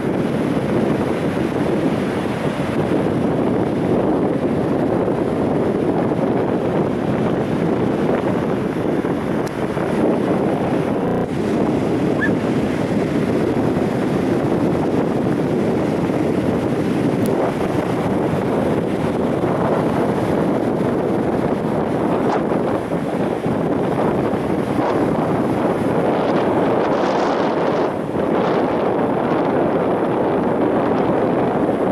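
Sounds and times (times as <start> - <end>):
wind buffeting the microphone: 0.0 - 31.9
small waves breaking on shore: 4.0 - 28.6.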